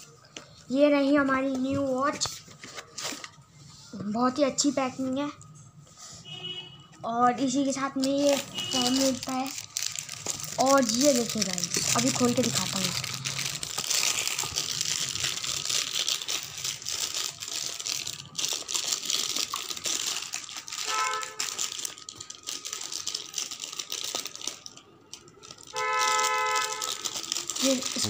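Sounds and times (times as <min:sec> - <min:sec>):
horn-like tone: 0:06.2 - 0:06.9
plastic bag crinkling: 0:08.0 - 0:28.0.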